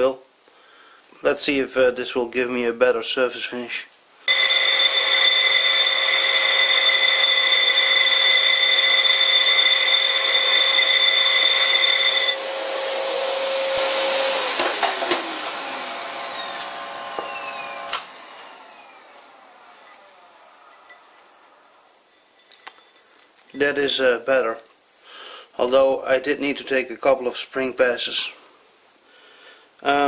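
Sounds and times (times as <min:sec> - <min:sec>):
lathe tool cutting cast iron: 0:04.3 - 0:22.8
falling whine of drive slowing: 0:04.3 - 0:23.0
lathe drive multi-tone whine: 0:04.3 - 0:23.0.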